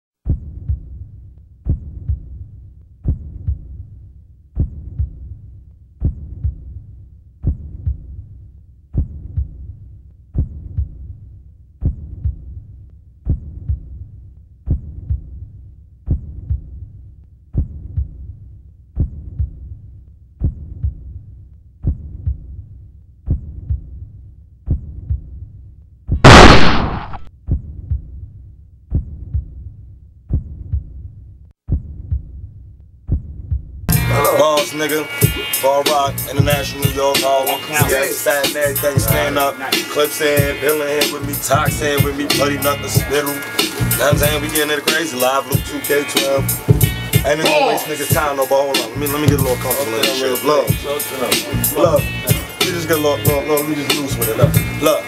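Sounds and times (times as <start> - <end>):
deep heartbeat thumps: 0.2 - 1.1, 1.7 - 3.8, 4.6 - 5.4, 6.0 - 6.8, 7.4 - 8.2, 8.9 - 9.8, 10.4 - 11.2, 11.8 - 12.6, 13.3 - 14.1, 14.7 - 15.4, 16.1 - 16.8, 17.6 - 18.3, 21.8 - 22.6, 26.1 - 28.2, 30.3 - 31.1, 31.7 - 32.5, 33.1 - 33.9
loud crash-like burst: 26.2 - 27.3.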